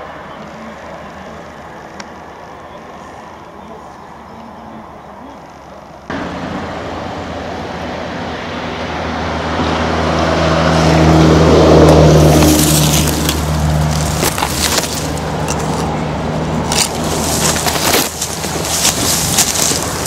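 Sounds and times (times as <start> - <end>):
truck engine running: 5.9 - 20.0
twigs and leaves crackling: 11.9 - 20.0.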